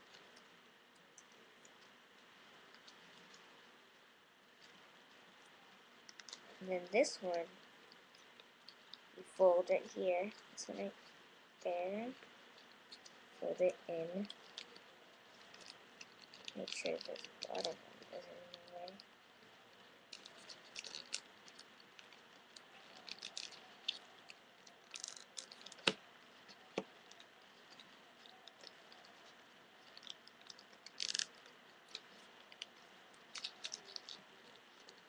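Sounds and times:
paper crinkling and rustling: 0:20.1 - 0:35.0.

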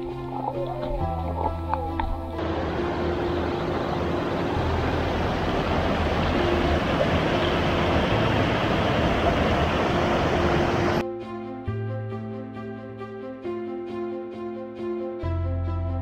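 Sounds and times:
stream rushing over stones: 0:02.4 - 0:11.0.

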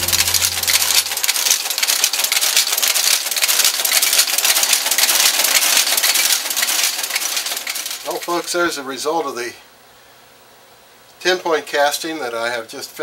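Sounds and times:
machine clattering rapidly: 0:00.0 - 0:08.5.

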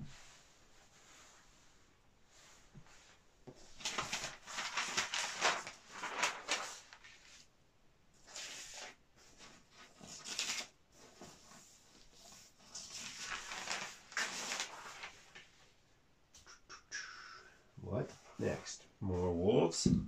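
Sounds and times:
paper sheets rustling: 0:02.8 - 0:07.5, 0:08.2 - 0:15.8.

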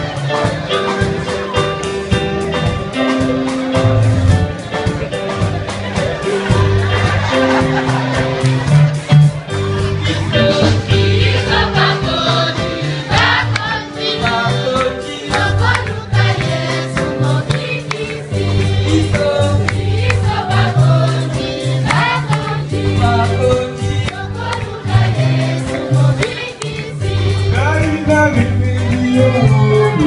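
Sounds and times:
choir singing gospel: 0:00.0 - 0:30.0
low bass line: 0:01.9 - 0:12.0, 0:26.8 - 0:30.0.

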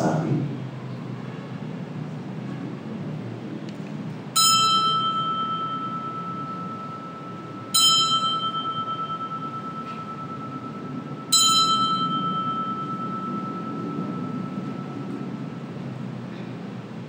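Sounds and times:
bell ringing: 0:04.4 - 0:16.3.

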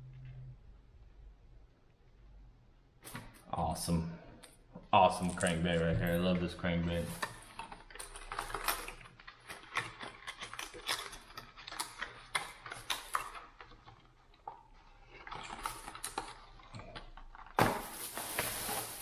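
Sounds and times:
plastic clicks and rattles: 0:07.2 - 0:14.6.

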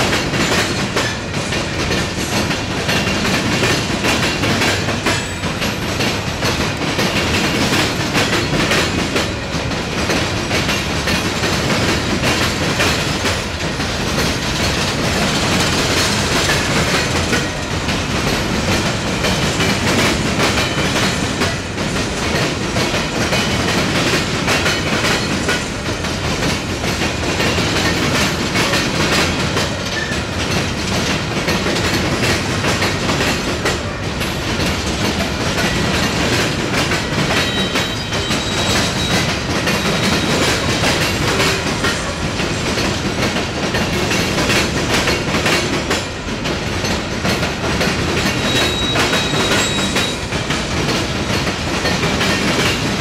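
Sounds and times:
train wheels clattering over rails: 0:00.0 - 0:53.0
faint high wheel squeals: 0:37.4 - 0:39.2, 0:48.5 - 0:50.2.

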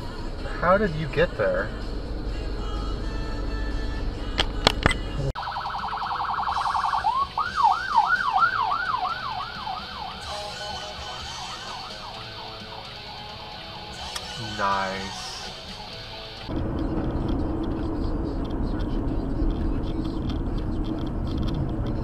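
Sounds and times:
ambulance siren: 0:05.3 - 0:15.7.

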